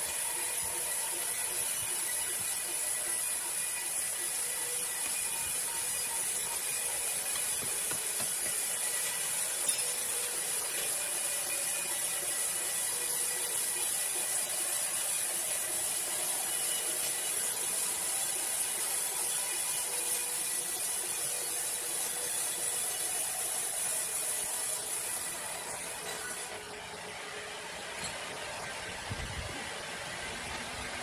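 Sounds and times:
sawmill machine running: 0.0s - 31.0s.

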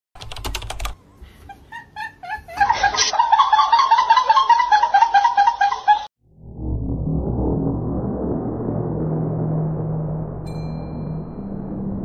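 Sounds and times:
high-pitched giggling and laughter: 1.2s - 6.1s.

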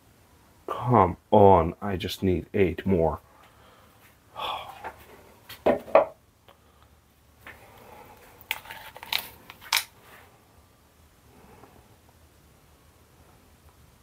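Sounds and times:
plastic cups knocking on workbench: 5.6s - 6.2s
plastic cups clicking and clattering: 8.5s - 9.9s.

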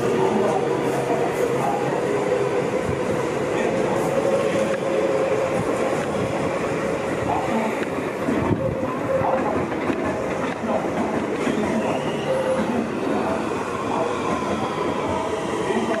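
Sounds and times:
electric train running past: 0.0s - 16.0s
short wheel squeals: 11.7s - 12.7s.

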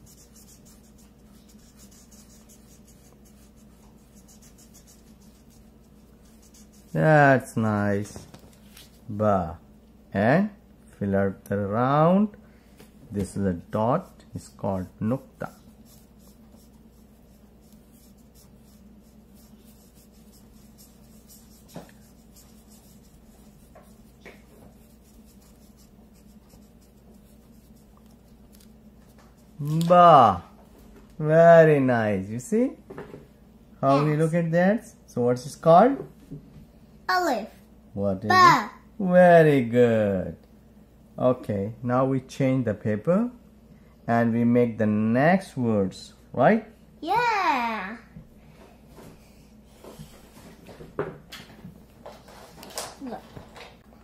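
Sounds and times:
markers scratching on paper: 0.0s - 7.2s, 15.2s - 29.6s.

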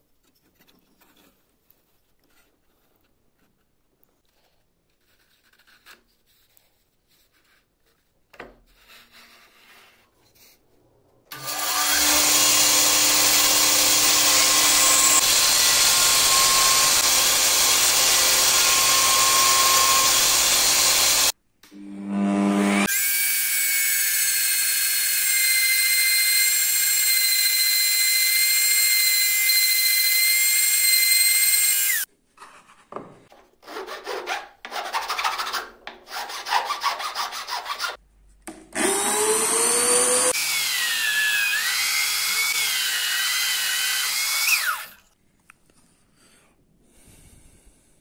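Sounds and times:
drill press boring into wood: 11.3s - 21.3s, 24.3s - 32.0s
router table high whine: 11.4s - 32.0s
hand file rasping on wood: 33.6s - 38.0s.

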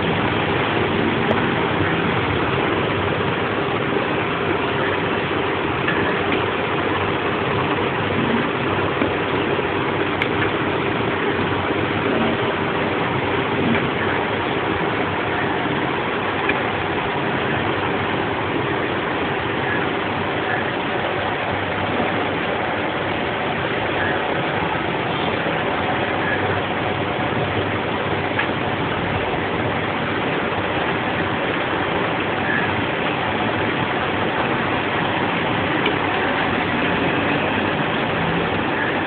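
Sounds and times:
steady rushing noise: 0.0s - 39.0s.

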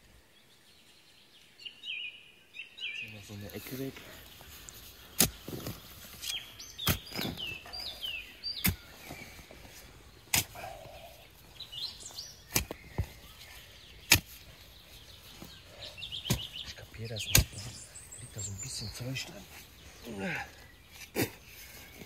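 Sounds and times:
small birds chirping: 0.0s - 22.0s
shovel digging soil: 4.7s - 10.8s, 12.4s - 15.1s, 16.2s - 17.9s, 20.9s - 22.0s.

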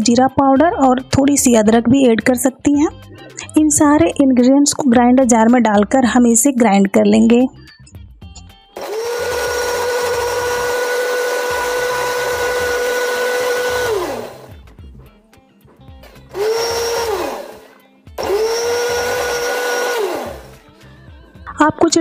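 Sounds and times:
mixer grinder motor whine: 8.8s - 14.6s, 16.0s - 20.6s.

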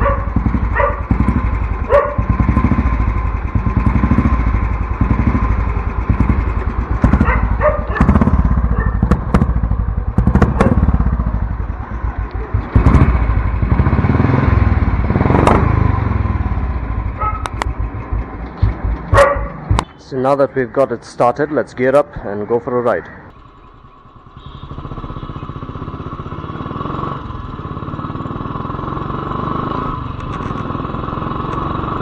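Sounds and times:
dog barking: 0.0s - 1.1s, 1.9s - 2.3s, 7.2s - 9.0s, 10.5s - 10.8s, 17.2s - 17.6s, 19.1s - 19.7s
motorcycle engine running: 0.0s - 20.4s, 23.3s - 32.0s.

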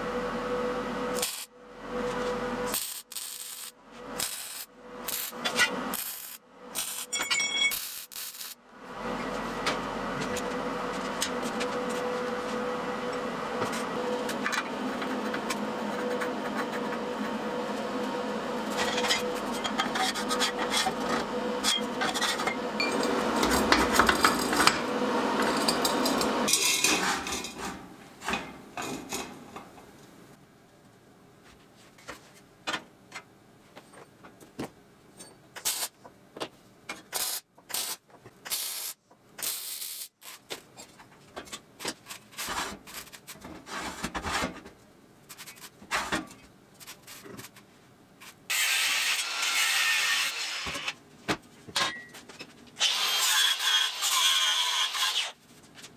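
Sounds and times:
welding arc crackling: 1.2s - 1.5s, 2.7s - 7.1s, 7.7s - 8.6s, 37.2s - 40.4s.

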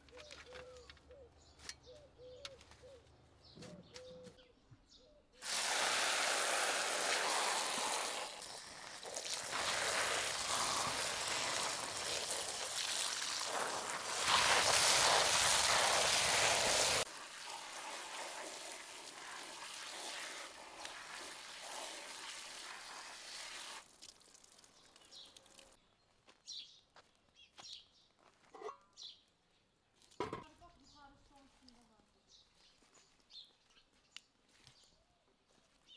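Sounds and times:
hose water spraying into colander: 5.4s - 25.8s.

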